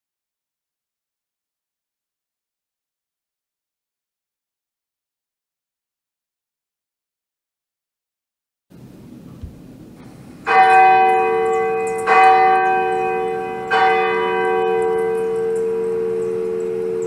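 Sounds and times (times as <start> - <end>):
bell ringing: 10.5 - 17.0.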